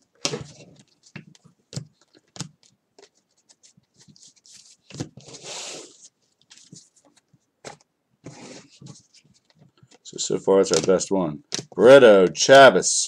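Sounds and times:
cards scraping swish: 0:04.3 - 0:06.8
card stack thud: 0:10.7 - 0:11.8.

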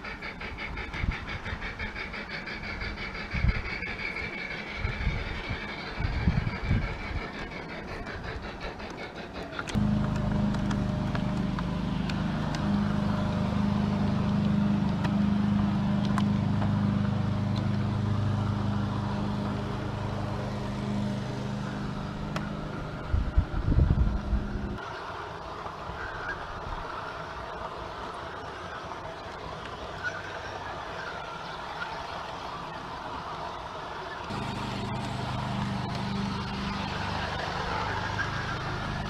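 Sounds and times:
low motor hum: 0:00.8 - 0:24.8, 0:34.2 - 0:39.0
quiet running noise: 0:09.7 - 0:30.8.

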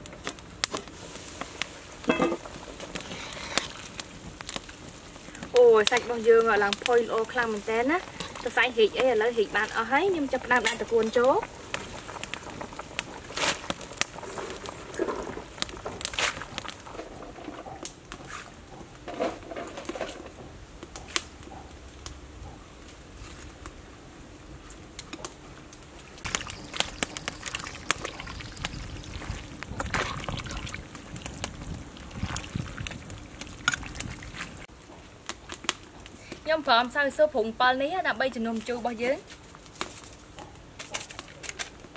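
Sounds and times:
soup simmering and bubbling: 0:06.2 - 0:17.6, 0:26.2 - 0:34.8.

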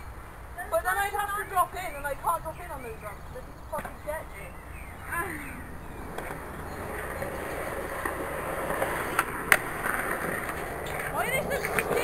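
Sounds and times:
skateboard wheels rolling on concrete: 0:00.0 - 0:12.0
skateboard clacks: 0:06.0 - 0:12.0.

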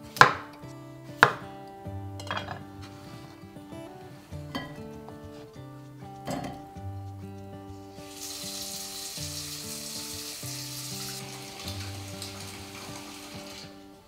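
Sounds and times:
soft background music: 0:00.0 - 0:14.0
tap water running into a pot: 0:08.0 - 0:13.8.

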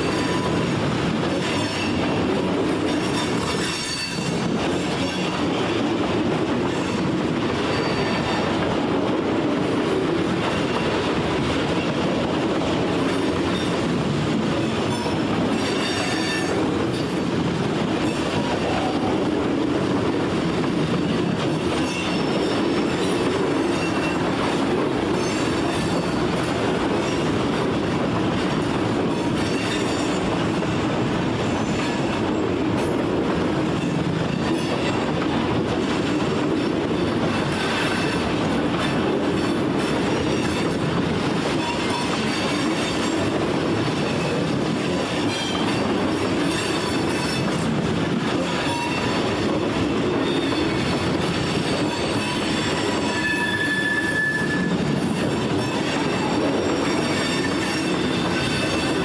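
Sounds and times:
freight train cars rolling: 0:00.0 - 0:59.0
high-pitched wheel squeals: 0:03.1 - 0:04.4, 0:14.9 - 0:17.3, 0:51.4 - 0:59.0.

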